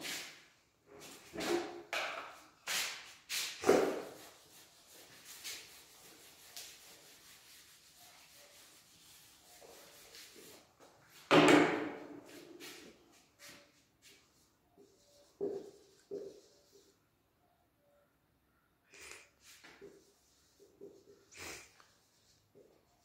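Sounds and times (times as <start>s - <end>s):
marker squeaking on whiteboard: 13.5s - 17.0s.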